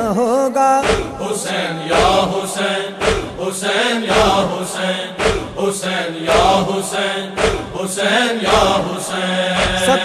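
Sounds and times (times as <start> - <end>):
men chanting in a group: 0.8 - 10.0
steady drum beat: 2.0 - 2.4, 3.0 - 3.5, 4.1 - 4.6, 5.2 - 6.8, 7.4 - 8.8, 9.6 - 10.0.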